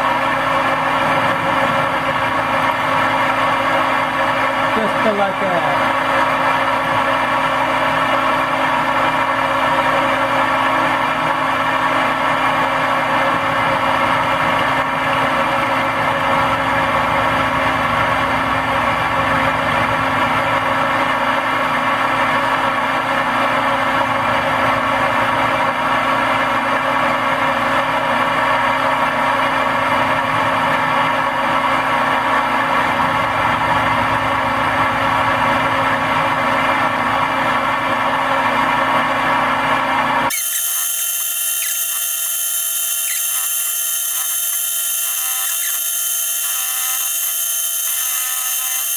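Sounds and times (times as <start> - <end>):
milling machine humming: 40.3 - 48.9.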